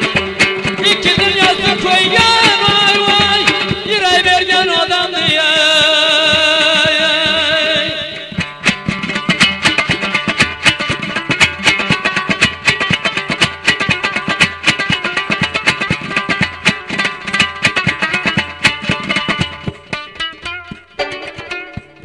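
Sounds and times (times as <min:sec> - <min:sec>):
plucked and strummed strings: 0:00.0 - 0:22.0
man singing: 0:00.6 - 0:08.4.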